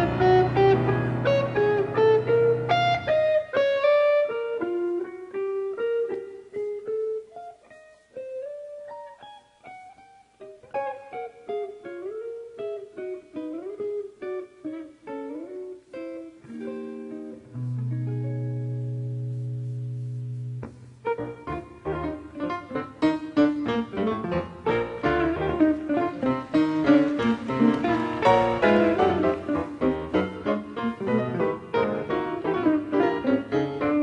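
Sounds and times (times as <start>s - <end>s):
electric guitar jazz solo: 0.0s - 34.0s
piano chord: 21.5s - 34.0s.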